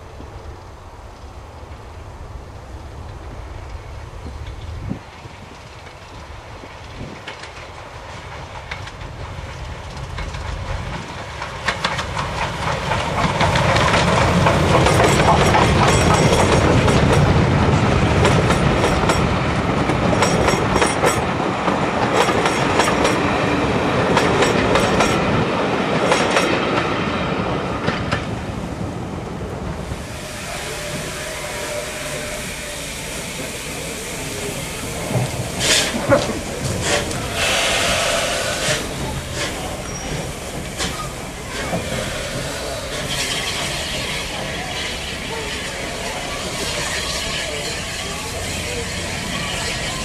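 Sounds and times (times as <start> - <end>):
steam locomotive passing: 0.0 - 50.0
wheels clicking over rail joints: 0.1 - 26.9, 33.4 - 38.0.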